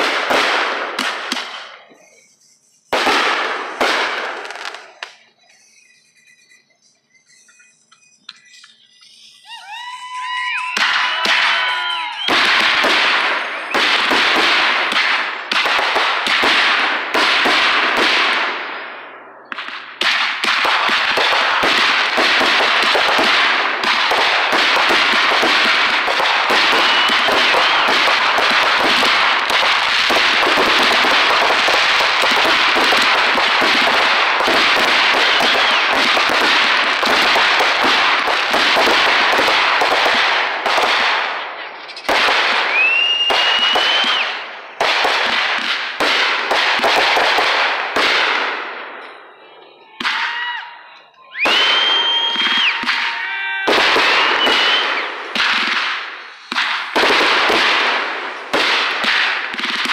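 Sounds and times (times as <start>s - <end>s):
fireworks crackling and popping: 0.0s - 59.9s
firework whistles rising: 1.5s - 15.8s, 21.1s - 41.1s, 41.8s - 45.5s, 49.0s - 55.5s.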